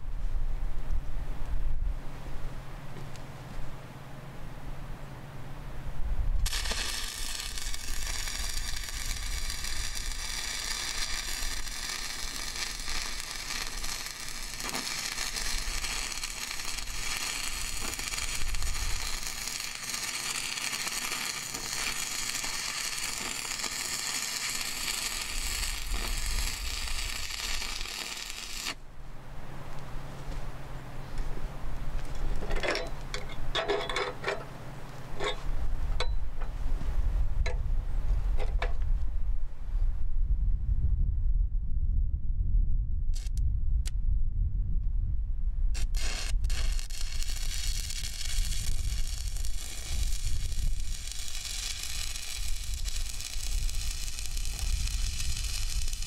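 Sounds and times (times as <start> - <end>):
welding arc crackling: 6.4 - 28.8, 43.2 - 43.4, 45.7 - 56.0.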